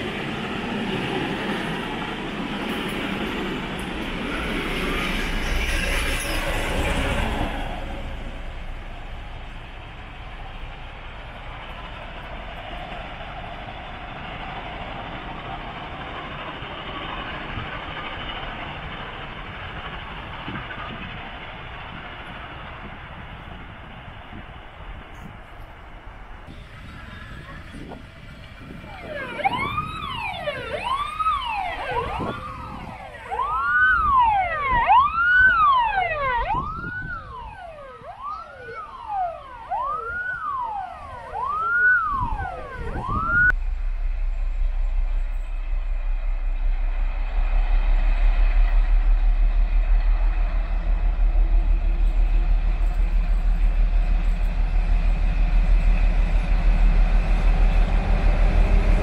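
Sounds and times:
diesel locomotive drone: 0:00.0 - 0:59.0
police siren rising and falling: 0:28.6 - 0:43.6.

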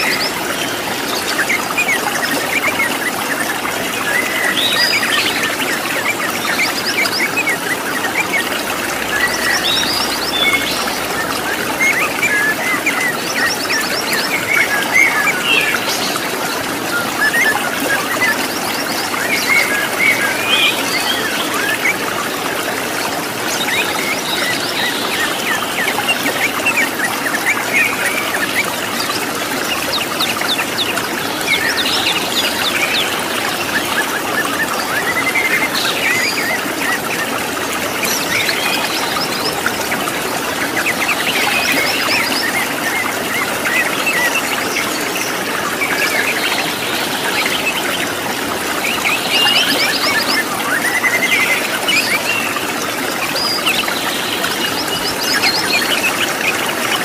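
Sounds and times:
birds chirping and trilling: 0:00.0 - 0:57.0
waterfall rushing: 0:00.0 - 0:57.0.

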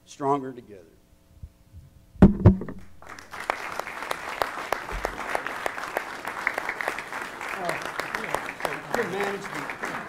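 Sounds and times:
loud knocks near microphone: 0:02.2 - 0:02.9
audience applauding: 0:03.0 - 0:10.0.

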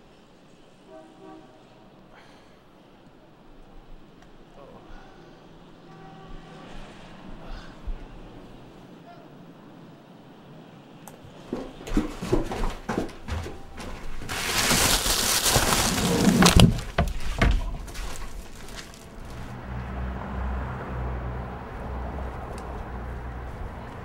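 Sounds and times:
footsteps on wooden stairs: 0:11.2 - 0:19.5
trash bag rustling: 0:13.2 - 0:19.5
low engine hum: 0:15.9 - 0:24.0.

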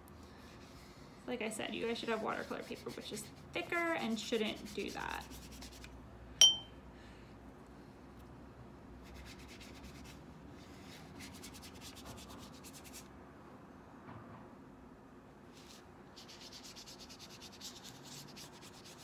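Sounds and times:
paintbrush scrubbing on paper: 0:00.3 - 0:05.9, 0:09.0 - 0:13.1, 0:15.5 - 0:19.0.

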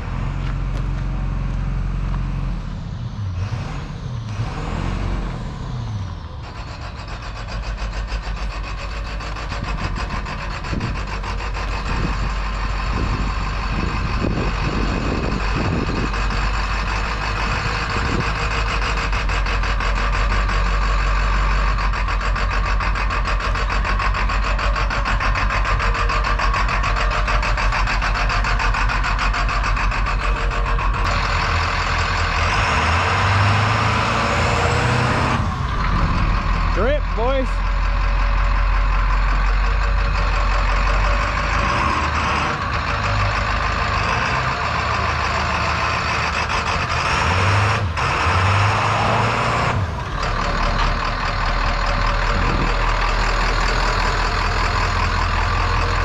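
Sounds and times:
bus engine running: 0:00.0 - 0:56.0.

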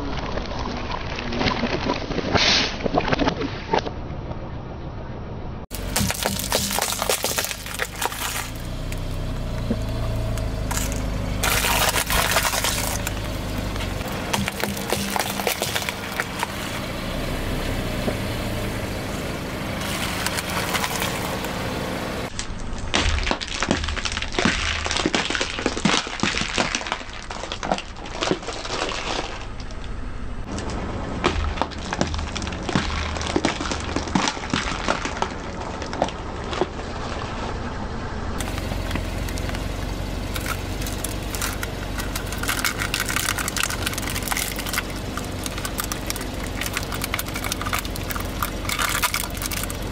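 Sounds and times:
car running: 0:05.0 - 0:49.9
plastic containers cracking under tyre: 0:05.7 - 0:16.7, 0:19.8 - 0:21.5, 0:22.3 - 0:37.6, 0:38.4 - 0:49.9.

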